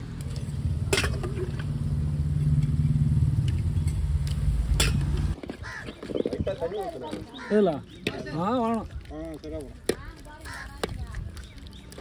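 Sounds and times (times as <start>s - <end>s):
low engine hum: 0.0s - 5.4s.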